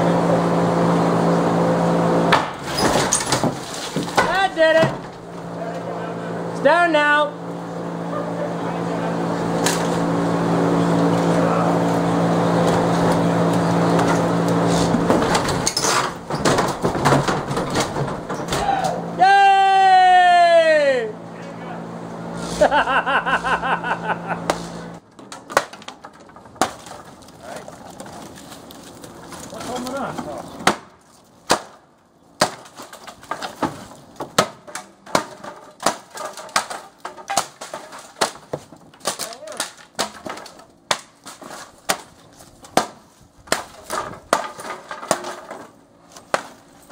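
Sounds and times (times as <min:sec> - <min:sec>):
steady machine drone: 0:00.0 - 0:02.6, 0:04.4 - 0:16.3, 0:17.2 - 0:25.0
wood cracking and breaking: 0:02.3 - 0:05.3, 0:12.8 - 0:18.8, 0:25.0 - 0:46.9
timber crashing and clattering: 0:02.3 - 0:05.5, 0:12.6 - 0:18.9, 0:25.0 - 0:31.8, 0:32.4 - 0:46.9.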